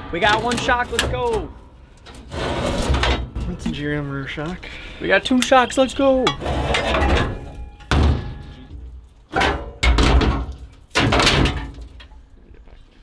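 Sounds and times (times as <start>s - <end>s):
heavy metal clunks: 6.2s - 12.1s.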